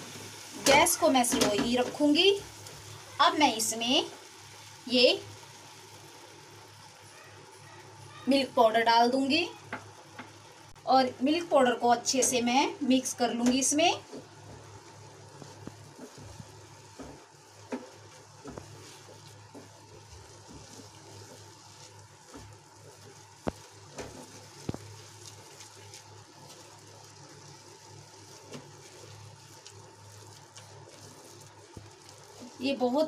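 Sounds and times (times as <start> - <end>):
faint sizzling: 0.0 - 33.0
spatula tapping pan: 16.9 - 21.6
spatula scraping thick mixture: 17.9 - 33.0.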